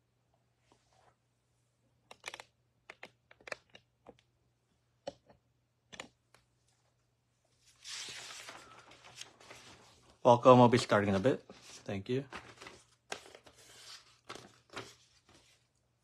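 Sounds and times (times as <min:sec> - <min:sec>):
typing on a computer keyboard: 0:02.1 - 0:04.2
rustling handling noise: 0:07.6 - 0:15.8.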